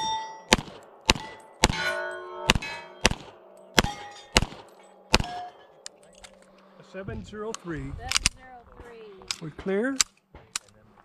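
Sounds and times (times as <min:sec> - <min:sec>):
handgun shots: 0:00.5 - 0:05.5
metallic clang of steel plate: 0:01.2 - 0:06.0.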